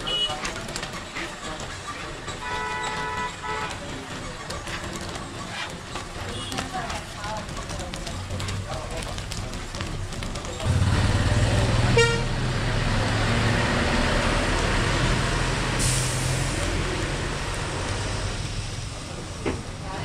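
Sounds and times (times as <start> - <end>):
heavy vehicle engine rumbling: 0.0 - 20.0
horn toot: 11.6 - 12.4.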